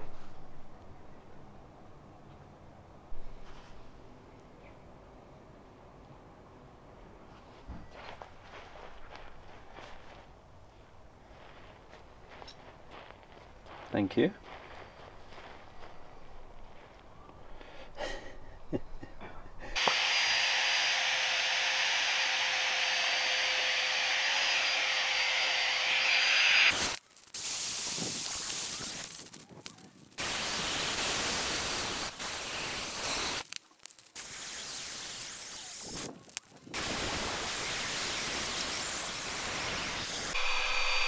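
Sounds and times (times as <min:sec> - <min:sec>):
electric air pump whining: 0:19.8 - 0:27.0, 0:37.6 - 0:41.0.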